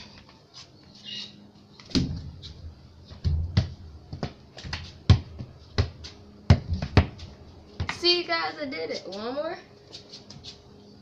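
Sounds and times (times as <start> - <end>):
football thudding off concrete: 1.9 - 2.3, 3.2 - 7.2.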